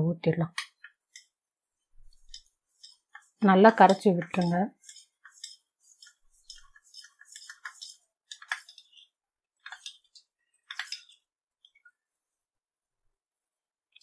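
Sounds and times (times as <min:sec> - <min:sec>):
spoon scraping in steel cup: 0:02.0 - 0:11.3.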